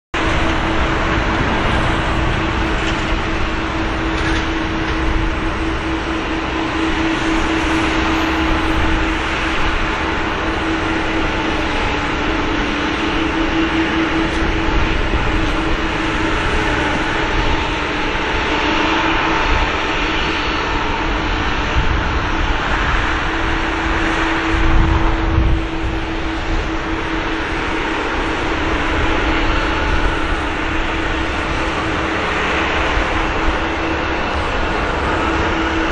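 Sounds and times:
jet engines running: 0:00.2 - 0:35.9.

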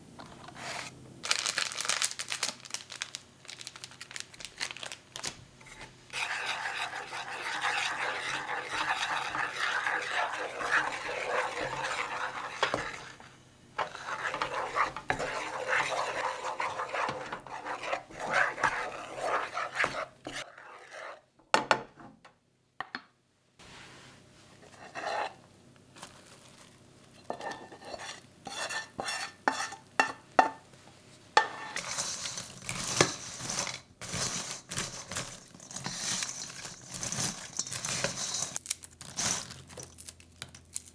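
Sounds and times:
popcorn rustling in a metal bowl: 0:00.4 - 0:20.6, 0:24.6 - 0:29.8, 0:31.7 - 0:40.9
scrapes and taps: 0:05.6 - 0:13.2, 0:13.8 - 0:21.2
caramel sizzling and bubbling: 0:05.6 - 0:21.2, 0:31.4 - 0:40.9
spatula stirring in a pan: 0:05.6 - 0:21.3, 0:24.6 - 0:25.4, 0:27.1 - 0:30.5, 0:31.4 - 0:38.6.

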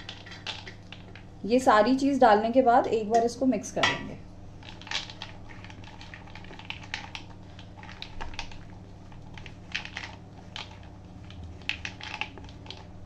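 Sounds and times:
spatula stirring in plastic bowl: 0:00.0 - 0:01.2.

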